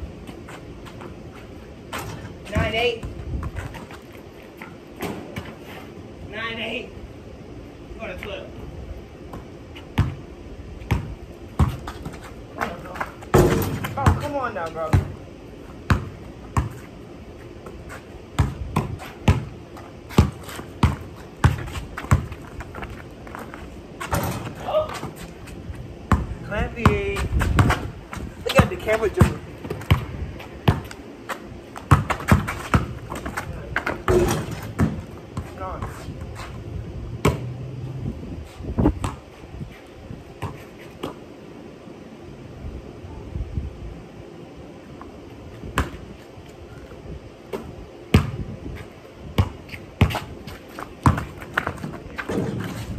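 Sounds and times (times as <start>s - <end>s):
basketball bouncing on concrete: 1.9s - 4.0s, 9.3s - 10.2s, 10.8s - 15.2s, 15.9s - 16.9s, 18.4s - 25.2s, 26.1s - 36.0s, 37.2s - 37.5s, 38.9s - 39.3s, 47.5s - 48.4s, 49.4s - 52.9s.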